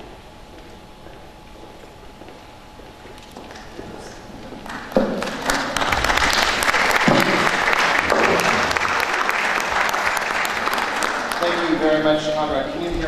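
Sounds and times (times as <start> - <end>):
audience applause: 4.7 - 12.4.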